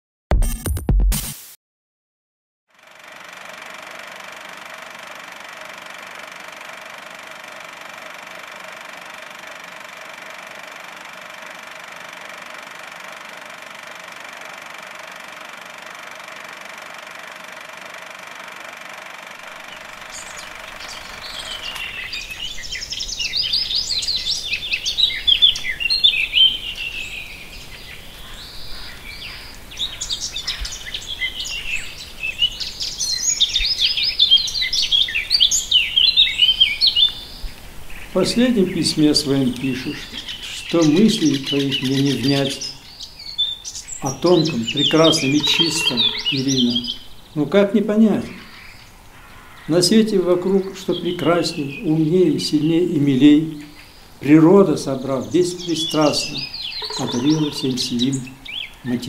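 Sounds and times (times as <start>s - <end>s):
small birds chirping: 19.4s - 59.0s.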